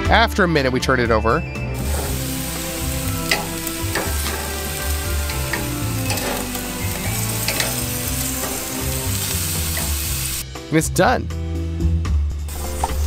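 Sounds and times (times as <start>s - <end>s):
meat sizzling on a grill: 1.8s - 10.4s, 12.5s - 13.0s
metal tongs clicking: 3.2s - 10.4s.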